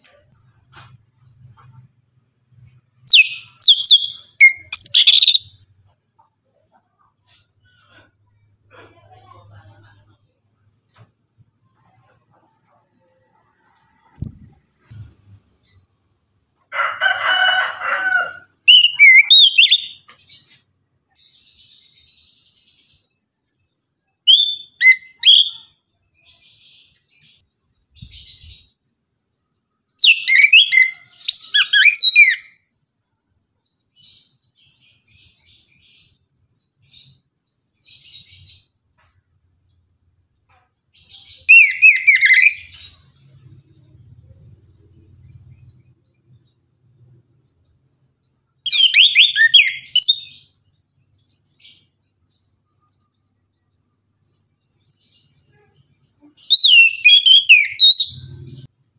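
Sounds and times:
soft bird twittering: 14.0s - 15.1s
thrush whistled song: 14.2s - 14.9s, 56.6s - 58.2s.

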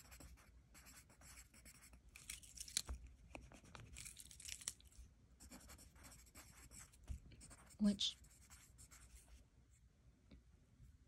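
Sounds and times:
pen scratching on paper: 0.0s - 2.0s, 5.4s - 9.4s.

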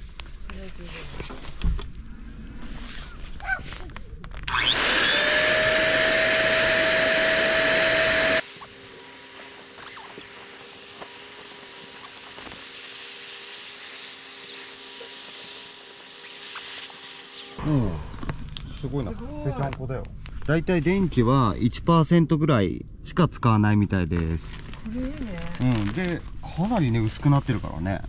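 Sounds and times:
vacuum pump whining: 4.5s - 18.7s.

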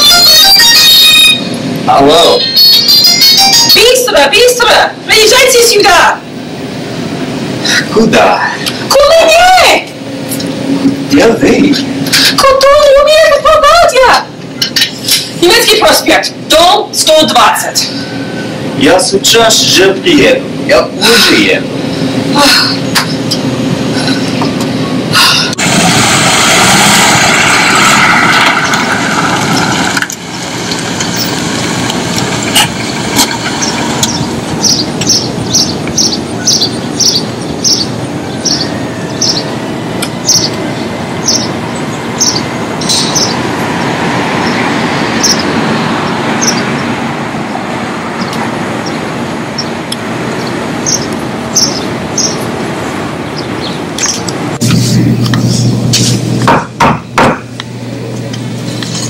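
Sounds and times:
outdoor background noise: 0.0s - 59.0s
car passing: 25.6s - 54.6s
bird chirping: 33.5s - 46.9s, 48.2s - 49.0s, 49.6s - 49.8s, 50.4s - 52.5s, 53.2s - 54.3s.

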